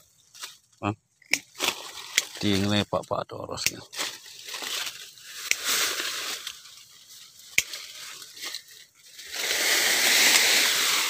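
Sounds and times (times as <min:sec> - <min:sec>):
leaves and twigs rustling: 0:00.0 - 0:11.0
pruning shears snip: 0:01.2 - 0:02.6, 0:03.6 - 0:04.1, 0:05.3 - 0:05.9, 0:07.5 - 0:08.6.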